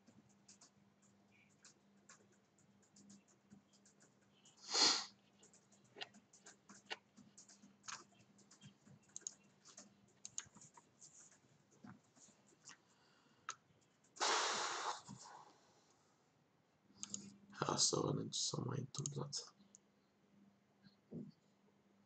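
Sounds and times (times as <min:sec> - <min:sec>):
keyboard and mouse clicks: 0:00.0 - 0:12.8, 0:17.0 - 0:17.3, 0:18.8 - 0:19.8
faint steady hum: 0:00.0 - 0:22.0.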